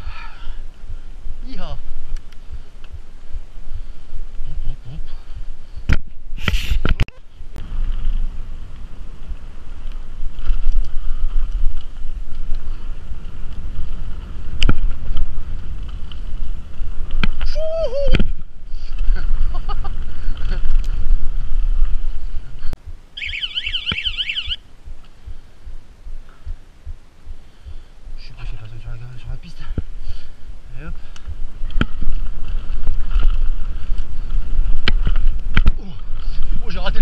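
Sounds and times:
wind and trail rumble: 0:00.0 - 0:37.0
warbling high tone: 0:23.2 - 0:24.6.

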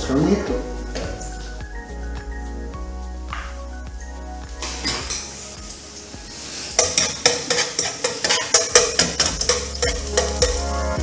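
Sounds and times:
oil sizzling: 0:04.6 - 0:11.0
metal utensil scraping a pan: 0:06.6 - 0:10.6.

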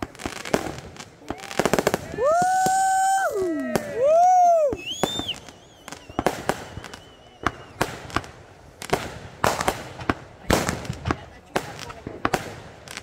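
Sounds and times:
firecrackers and fireworks banging: 0:00.0 - 0:13.0
faint high whistle: 0:04.1 - 0:07.9.

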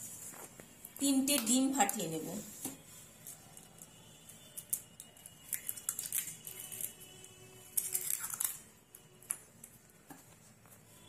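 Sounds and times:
eggshells cracking: 0:04.7 - 0:06.9, 0:07.8 - 0:08.6.

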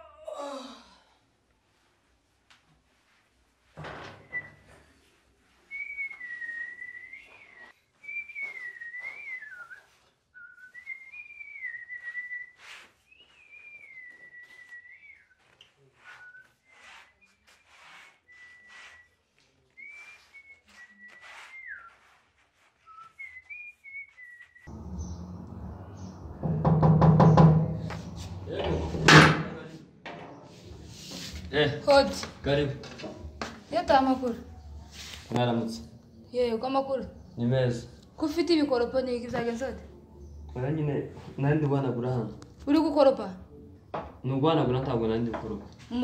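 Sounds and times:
man whistling a tune: 0:05.7 - 0:17.4, 0:18.2 - 0:19.2, 0:22.8 - 0:24.7
low rumbling noise: 0:24.7 - 0:30.0.

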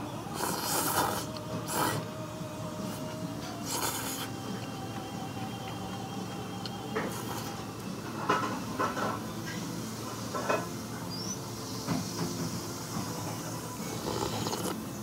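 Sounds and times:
steady background hum: 0:00.0 - 0:15.0
eating noises: 0:00.3 - 0:02.1, 0:02.8 - 0:06.0, 0:13.8 - 0:14.9.

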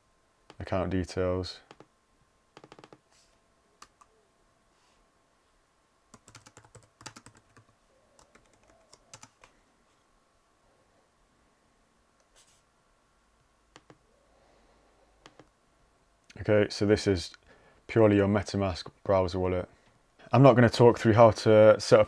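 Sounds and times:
faint typing on keyboard: 0:01.6 - 0:01.9, 0:02.5 - 0:04.2, 0:06.1 - 0:09.6, 0:13.7 - 0:14.0, 0:15.2 - 0:15.6.

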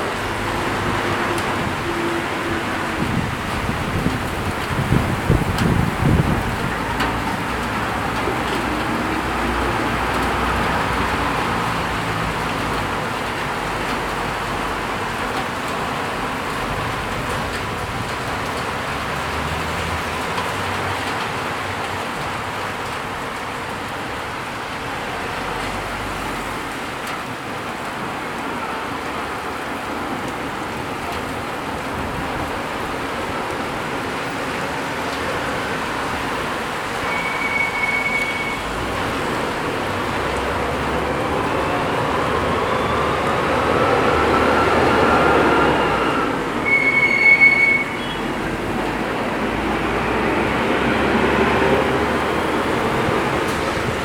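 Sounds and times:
rain falling on a street: 0:00.0 - 0:54.0
traffic on a wet road: 0:00.0 - 0:54.0.

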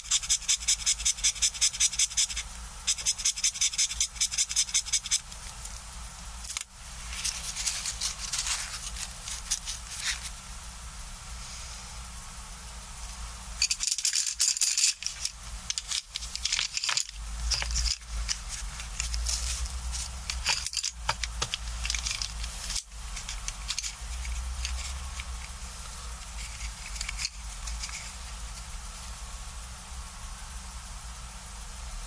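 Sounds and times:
wooden pencils clattering: 0:13.6 - 0:25.4, 0:26.3 - 0:28.2.

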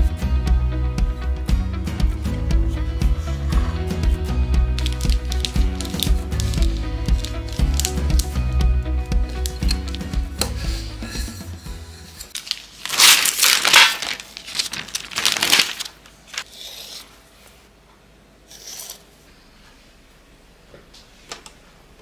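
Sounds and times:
plastic sheet crinkling: 0:04.8 - 0:10.2, 0:12.3 - 0:16.5.

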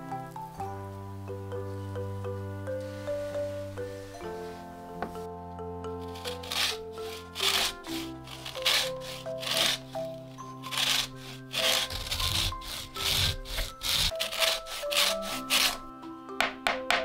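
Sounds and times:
soft background music: 0:00.0 - 0:17.0
lemon rasping on a grater: 0:06.0 - 0:15.9.

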